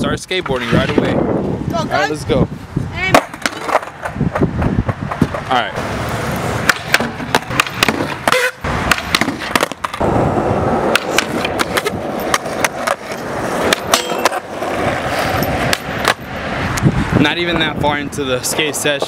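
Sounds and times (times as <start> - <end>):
skateboard wheels rolling on concrete: 0.0 - 19.0
skateboard clacks: 3.0 - 5.5, 6.4 - 10.1, 10.8 - 16.9.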